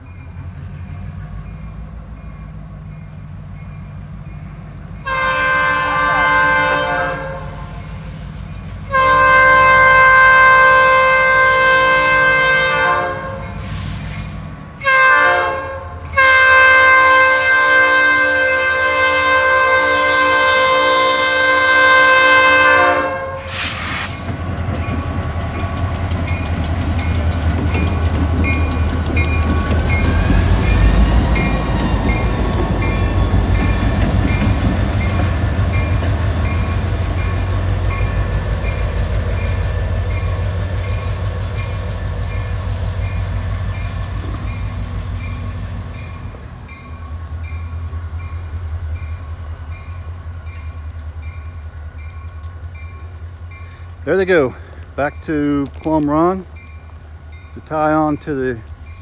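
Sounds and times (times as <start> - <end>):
locomotive horn: 5.0 - 8.0, 8.8 - 13.8, 14.8 - 24.2.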